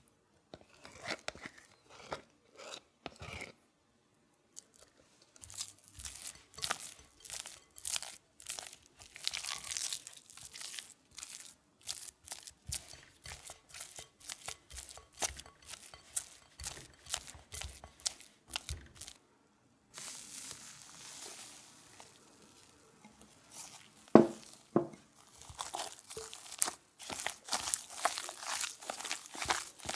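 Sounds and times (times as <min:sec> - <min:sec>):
spatula scraping glass bowl: 0:00.5 - 0:03.6, 0:05.4 - 0:19.2, 0:23.0 - 0:29.9.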